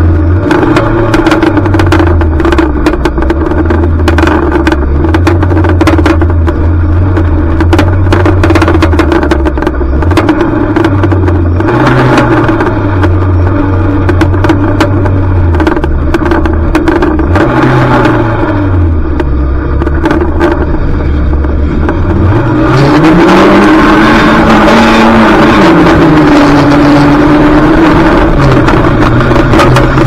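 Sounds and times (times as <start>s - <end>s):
race car engine revving: 0.0s - 30.0s
sharp knocks and rattles: 0.4s - 18.3s, 18.9s - 22.3s.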